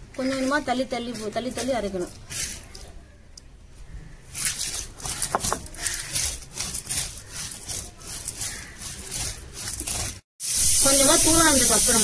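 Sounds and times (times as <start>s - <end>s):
stone roller crushing spices: 4.3s - 10.2s.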